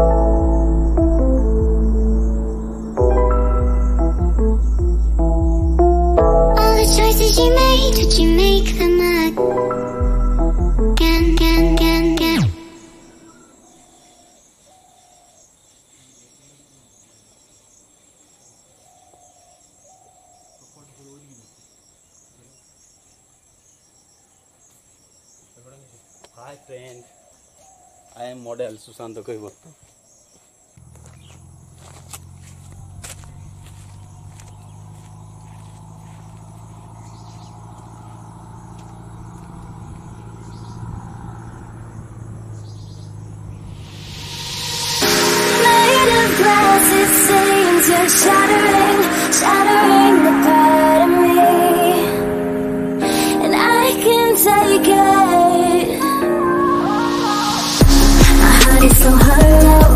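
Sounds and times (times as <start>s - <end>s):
insects chirring: 0.0s - 5.8s, 11.0s - 51.5s.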